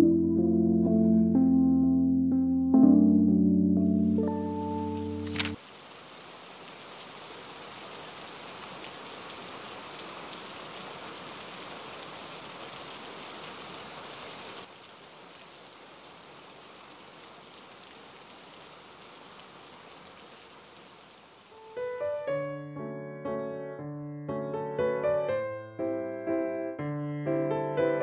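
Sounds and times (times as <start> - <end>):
steady rain falling: 3.9 - 22.4.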